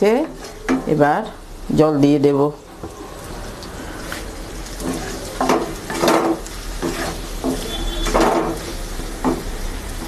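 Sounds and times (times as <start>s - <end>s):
light sizzle: 0.0s - 10.0s
wooden spatula scraping metal pan: 3.9s - 9.5s.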